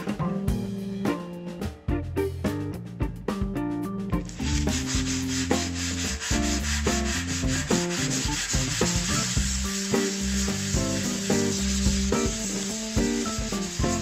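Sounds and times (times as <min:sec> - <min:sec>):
background music with a beat: 0:00.0 - 0:14.0
plastic rubbed on sandpaper: 0:04.3 - 0:14.0.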